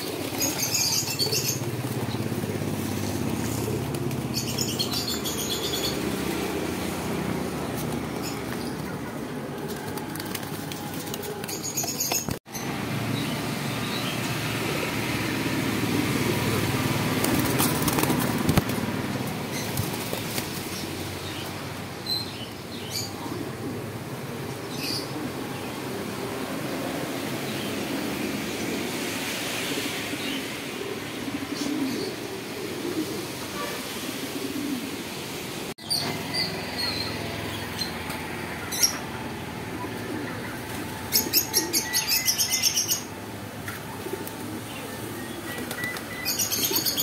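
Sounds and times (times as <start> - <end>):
pigeons flapping wings: 0.0 - 12.4, 15.9 - 21.0, 45.4 - 47.0.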